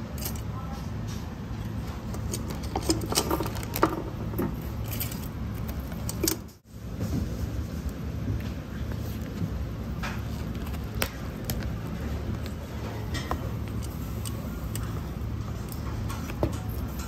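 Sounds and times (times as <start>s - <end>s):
utensils clinking: 0.0s - 6.6s, 10.0s - 17.0s.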